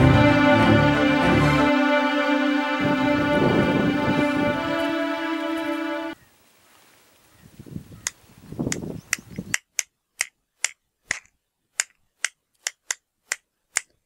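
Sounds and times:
faint low outdoor noise: 0:00.0 - 0:14.0
sharp dry clicks: 0:08.0 - 0:14.0.

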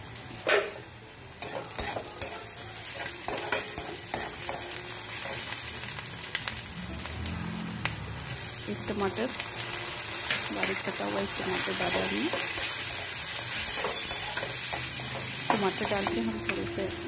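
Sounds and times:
vegetables sizzling in oil: 0:00.0 - 0:17.0
metal spatula scraping a pan: 0:11.3 - 0:16.6.

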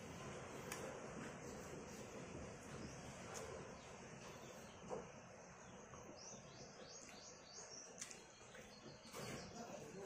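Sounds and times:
man chewing food: 0:07.8 - 0:08.8.

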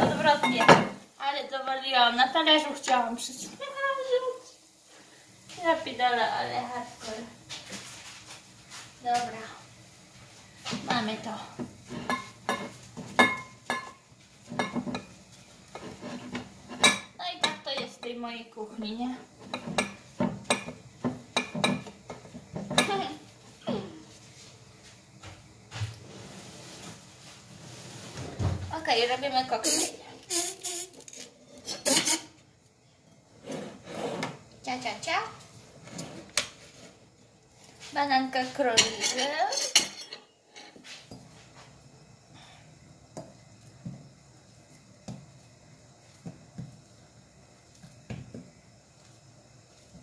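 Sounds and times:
utensils clinking against plates: 0:00.4 - 0:01.0, 0:38.7 - 0:40.8.

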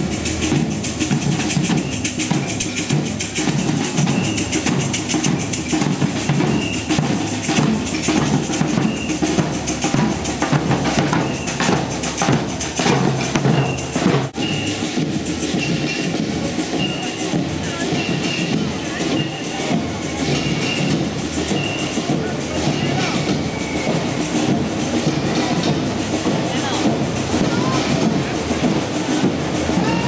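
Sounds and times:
bass drums and snare drums: 0:00.0 - 0:30.0.

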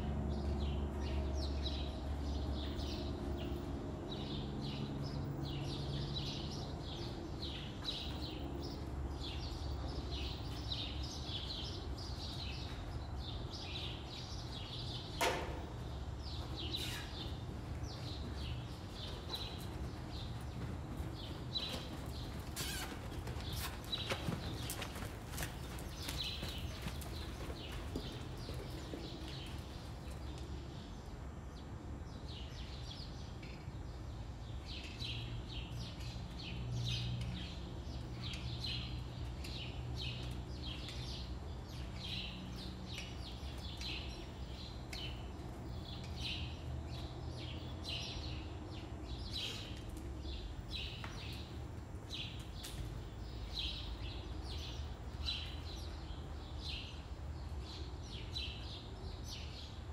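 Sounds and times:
small birds chirping: 0:00.3 - 0:59.9.

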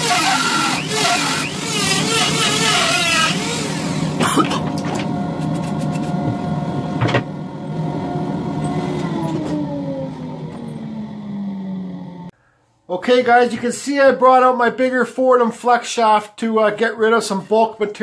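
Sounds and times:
rotary tool motor whining: 0:00.0 - 0:04.2.

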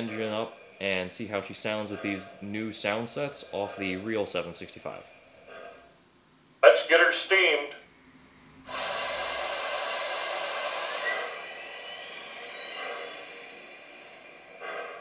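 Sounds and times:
model locomotive steam hiss: 0:00.0 - 0:05.6, 0:08.6 - 0:15.0
rising whine: 0:08.6 - 0:15.0.

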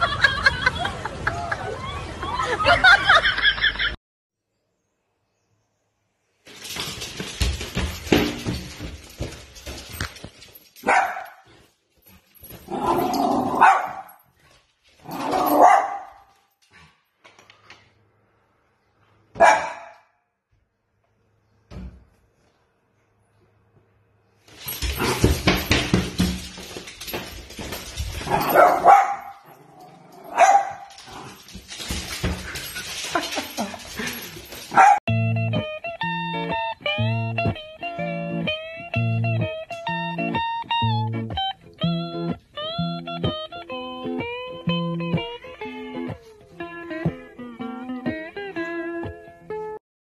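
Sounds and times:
small dog barking: 0:10.8 - 0:11.4, 0:13.5 - 0:14.1, 0:15.4 - 0:16.2, 0:19.4 - 0:20.1, 0:28.3 - 0:29.4, 0:30.3 - 0:30.9, 0:34.7 - 0:35.0.

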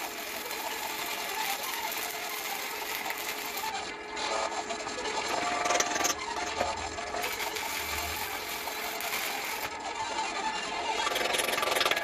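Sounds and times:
welding arc crackling: 0:00.0 - 0:03.9, 0:05.1 - 0:10.0.

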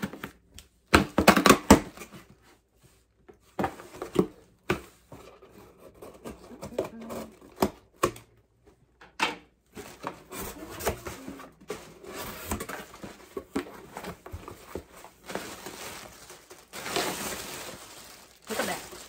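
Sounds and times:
plastic packing crinkling: 0:09.8 - 0:19.0.

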